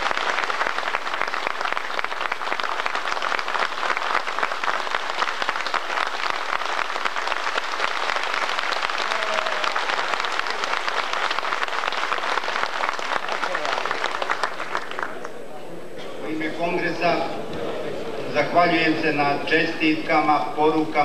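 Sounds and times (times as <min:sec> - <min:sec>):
audience applauding: 0:00.0 - 0:15.4.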